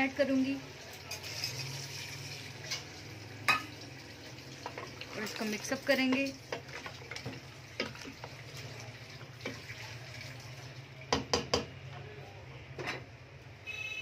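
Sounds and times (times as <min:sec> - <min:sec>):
wooden spoon stirring in pot: 0:04.5 - 0:10.4
spoon knocking against pot: 0:11.1 - 0:11.7.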